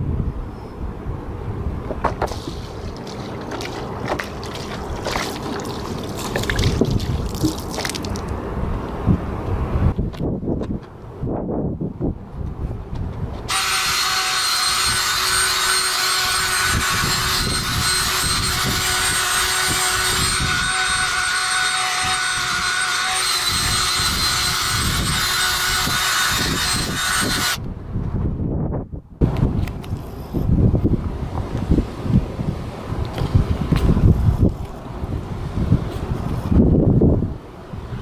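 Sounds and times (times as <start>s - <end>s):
wire brush scraping asphalt: 2.2s - 8.2s, 13.4s - 27.6s
power drill motor whine: 13.5s - 27.6s.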